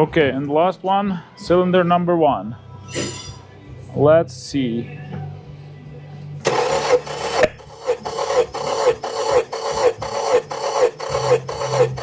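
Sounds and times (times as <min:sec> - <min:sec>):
engine cranked by starter motor: 0:06.4 - 0:12.0.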